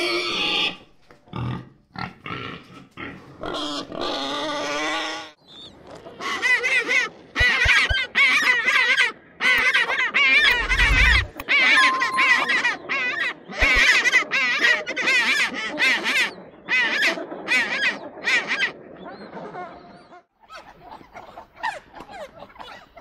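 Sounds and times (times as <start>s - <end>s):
wild boar squealing: 9.6s - 11.4s.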